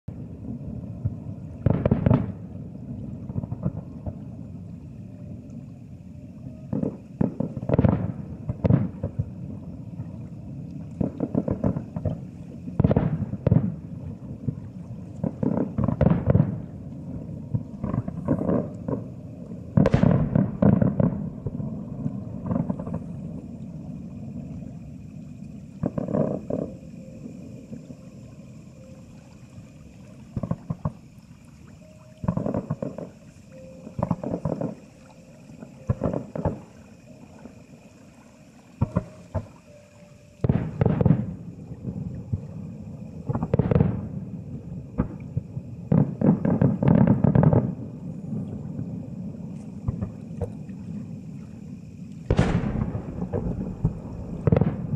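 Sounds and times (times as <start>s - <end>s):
distant firework booms: 1.0s - 2.6s, 3.2s - 4.2s, 6.7s - 9.4s, 11.0s - 16.8s, 19.8s - 23.3s, 38.8s - 39.5s, 40.4s - 42.5s, 43.2s - 44.3s, 45.0s - 47.8s, 49.8s - 50.6s, 52.3s - 54.9s.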